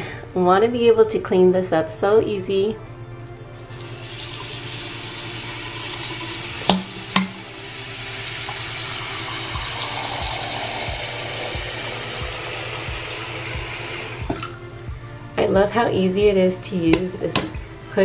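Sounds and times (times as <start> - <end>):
faucet water splashing in sink: 3.7 - 14.6.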